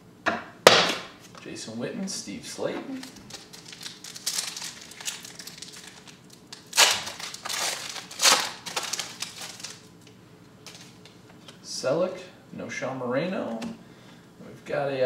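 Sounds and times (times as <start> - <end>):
foil wrapper crinkling: 3.0 - 11.2.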